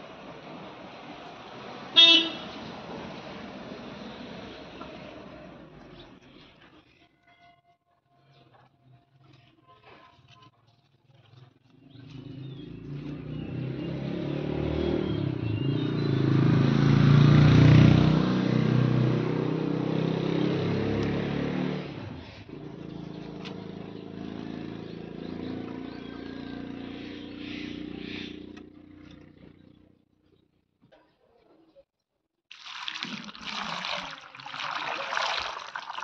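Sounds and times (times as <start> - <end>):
vehicle engine passing: 11.8 - 30.0.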